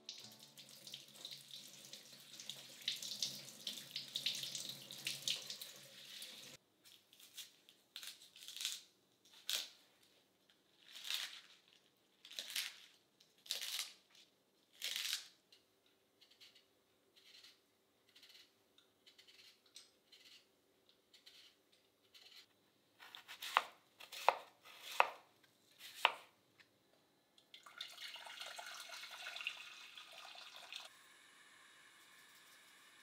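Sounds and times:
knife cutting on cutting board: 21.1 - 25.2, 25.8 - 26.3
tap water running into sink: 27.6 - 30.9.

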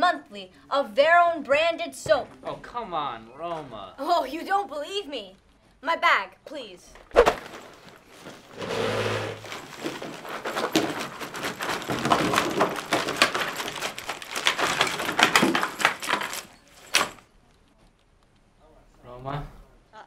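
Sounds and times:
bottles and packages clattering: 7.0 - 17.2.

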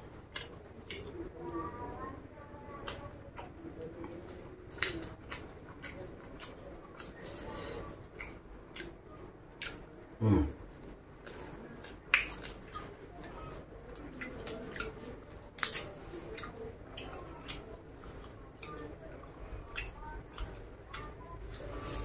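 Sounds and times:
crunchy chewing of leaves: 0.0 - 22.0
leaves rustling and tearing: 14.3 - 16.3.

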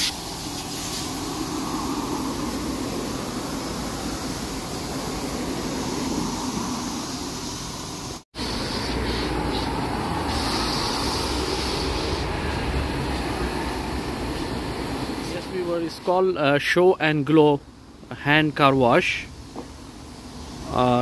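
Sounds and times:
car wash machine rushing: 0.0 - 16.4.

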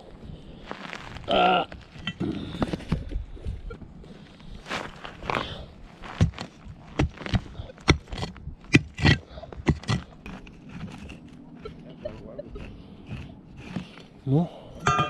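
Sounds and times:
earth scraping: 0.0 - 15.0
pickaxe chopping hard soil: 6.1 - 10.0.

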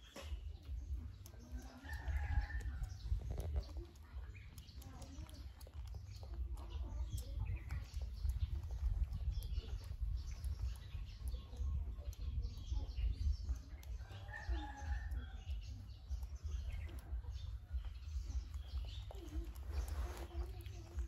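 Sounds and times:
birds chirping: 0.0 - 21.0
steady low rumble: 0.0 - 21.0
fingers rustling through hair: 15.6 - 21.0.

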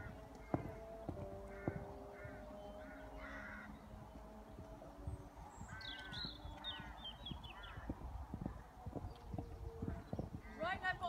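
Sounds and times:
crows cawing: 0.0 - 4.1, 5.6 - 8.0.

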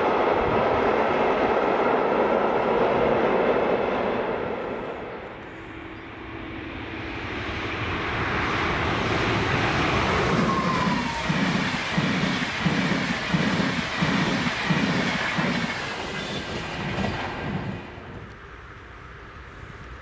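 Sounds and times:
rushing noise: 0.0 - 18.1
train rumble: 0.0 - 20.0
falling whine: 4.5 - 12.5.

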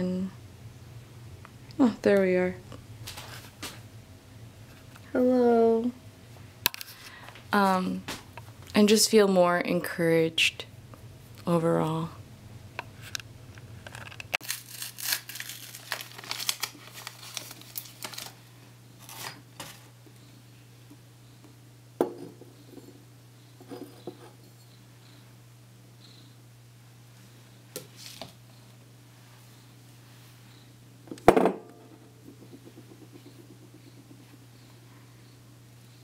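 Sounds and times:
crinkling and rustling: 13.8 - 19.9.

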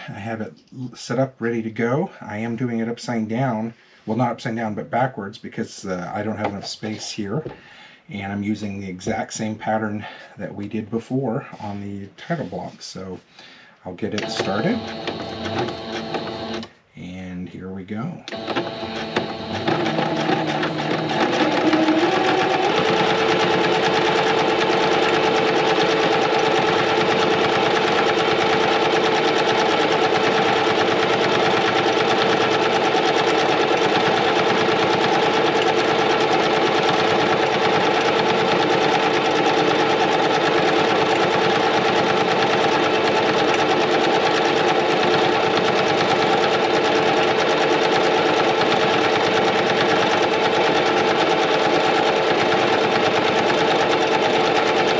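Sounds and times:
electric sewing machine stitching: 14.1 - 16.7, 18.3 - 54.9.

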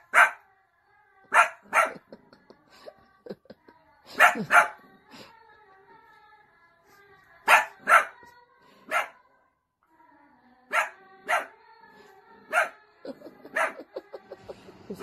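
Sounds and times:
small dogs barking: 0.0 - 0.4, 1.3 - 2.0, 4.2 - 4.8, 7.5 - 8.2, 8.9 - 9.2, 10.7 - 11.5, 12.5 - 14.0.

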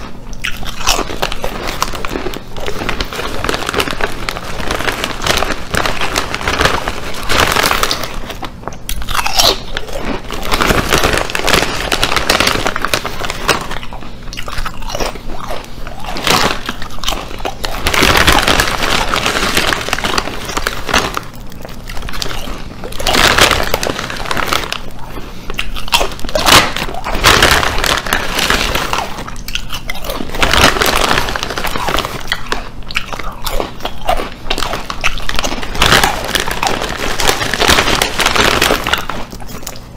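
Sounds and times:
potato chips crunching: 0.0 - 39.9.

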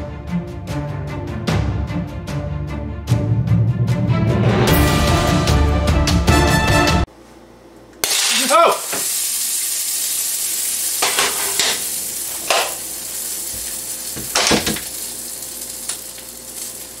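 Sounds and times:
eggs sizzling in skillet: 8.0 - 17.0.

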